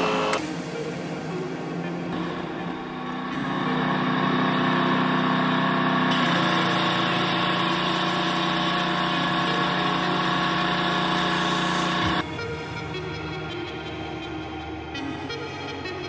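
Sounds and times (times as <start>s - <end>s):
motor humming: 2.2s - 12.5s.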